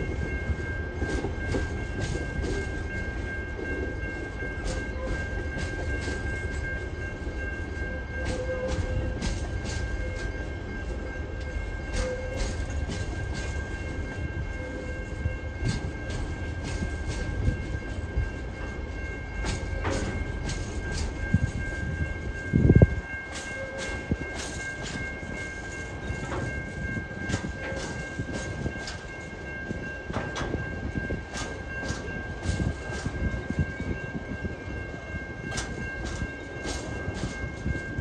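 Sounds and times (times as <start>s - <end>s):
freight train rolling past: 0.0s - 38.0s
wheels clicking over rail joints: 15.6s - 21.8s.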